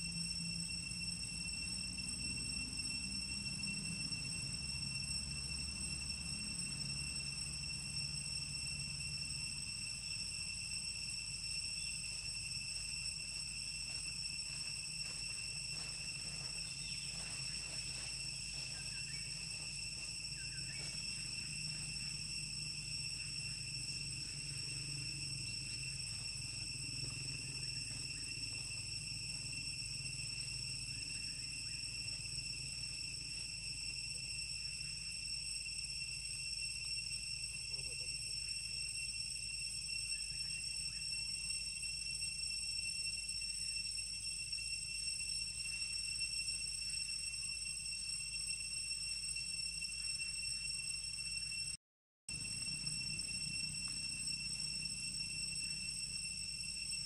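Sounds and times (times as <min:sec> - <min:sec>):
low hum: 0:00.0 - 0:38.3
insects droning high-pitched: 0:00.0 - 0:57.0.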